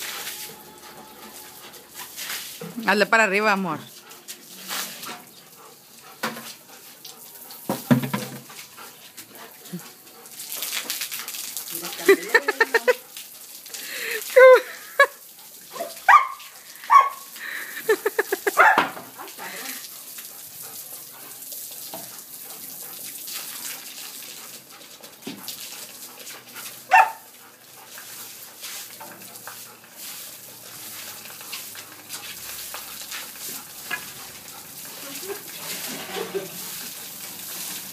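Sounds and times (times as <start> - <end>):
water spray hissing: 0.0 - 3.1, 4.2 - 13.0, 13.6 - 23.9
dog barking: 15.8 - 17.3, 18.5 - 19.0, 26.9 - 27.3.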